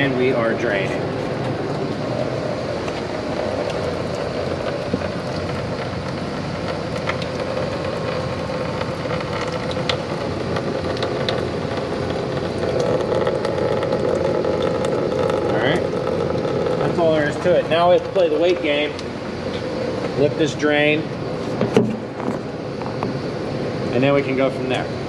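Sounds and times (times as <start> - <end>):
liquid pouring into plastic pan: 2.8 - 20.2.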